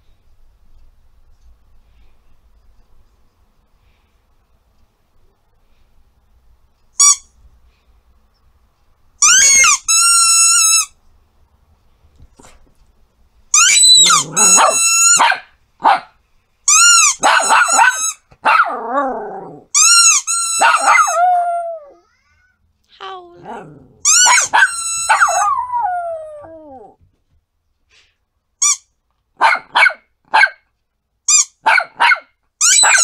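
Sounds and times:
squeaky toy squeaking: 7.0s - 7.3s, 9.2s - 11.0s, 13.5s - 15.4s, 16.7s - 18.2s, 19.7s - 21.2s, 24.0s - 25.5s, 28.6s - 28.9s, 31.3s - 31.6s, 32.6s - 33.0s
small dog barking and yelping: 13.6s - 16.2s, 16.8s - 19.0s, 20.4s - 22.2s, 23.1s - 27.0s, 29.4s - 30.6s, 31.4s - 33.0s.

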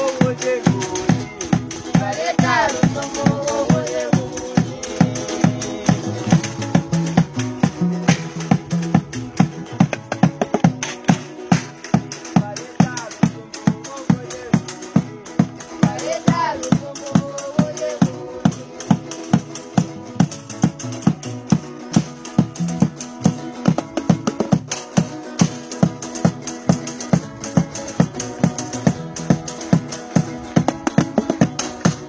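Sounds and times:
person singing: 0.0s - 7.6s, 12.2s - 20.1s
guitars strumming: 0.0s - 32.0s
rattling beat: 0.0s - 32.0s.

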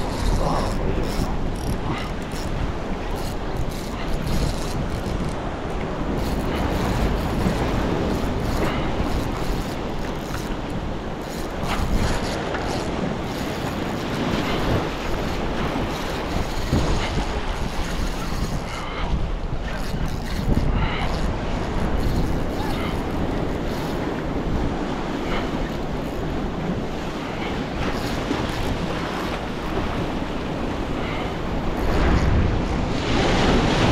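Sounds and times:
wind buffeting microphone: 0.0s - 33.9s
surf breaking against rocks: 26.8s - 33.9s.

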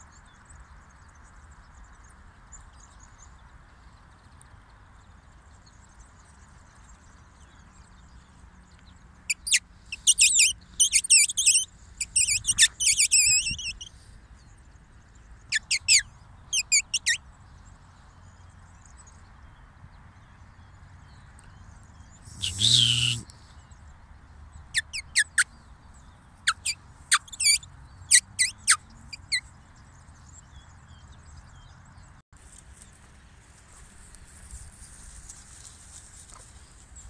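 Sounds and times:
linnets twittering: 9.3s - 13.9s, 15.5s - 17.2s, 22.2s - 23.3s, 26.5s - 29.4s.

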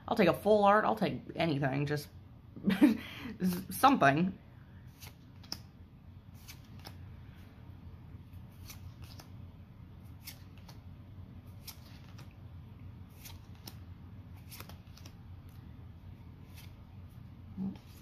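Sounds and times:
cards flipped by hand: 4.9s - 5.7s, 6.4s - 7.0s, 8.4s - 9.4s, 10.1s - 10.9s, 11.5s - 12.4s, 13.1s - 15.6s, 16.4s - 16.8s.

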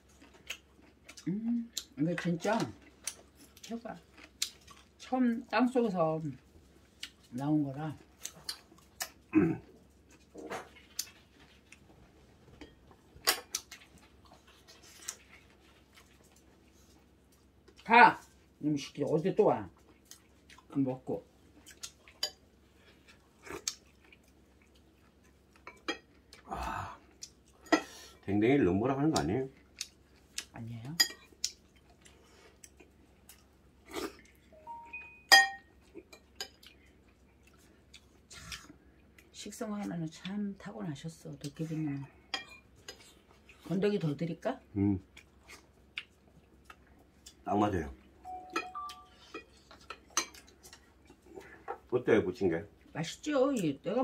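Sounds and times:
utensils clinking against bowls: 35.0s - 36.6s, 48.3s - 50.4s.

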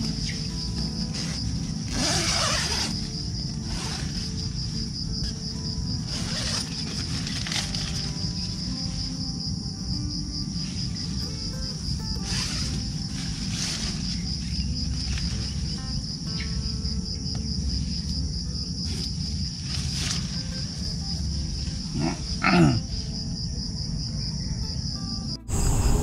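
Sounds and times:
tent fabric rustling: 0.0s - 9.6s, 10.6s - 16.2s, 18.8s - 22.0s
insects chirring: 0.0s - 26.0s.

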